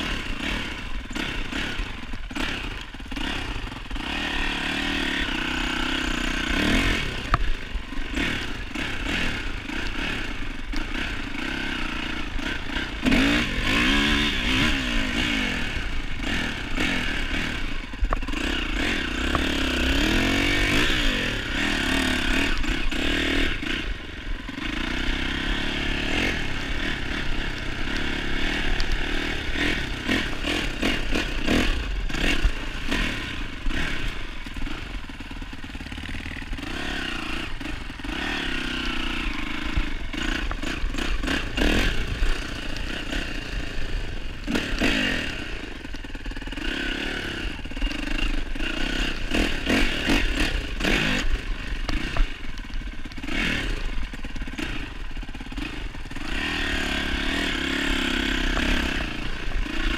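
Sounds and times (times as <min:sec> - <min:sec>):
dirt bike engine under load: 0:00.0 - 0:59.9
knocks and clatter over rough ground: 0:16.1 - 0:23.9, 0:24.6 - 0:59.9.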